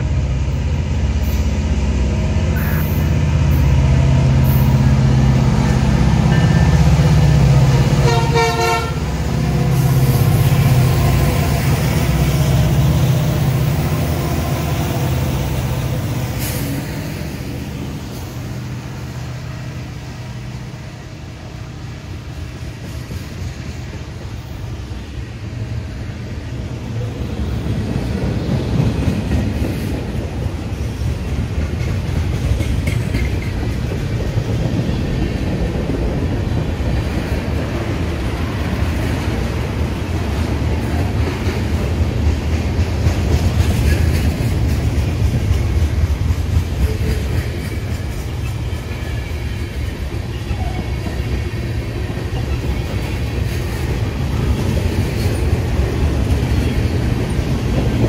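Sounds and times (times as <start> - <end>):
train horn toot: 8.0 - 9.1
freight cars clattering on rails: 27.6 - 58.0.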